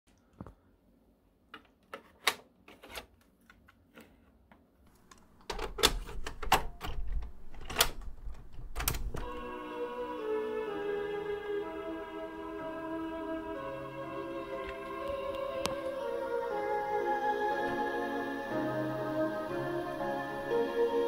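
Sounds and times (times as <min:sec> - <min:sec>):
slow music with held notes: 0:09.2 - 0:21.0.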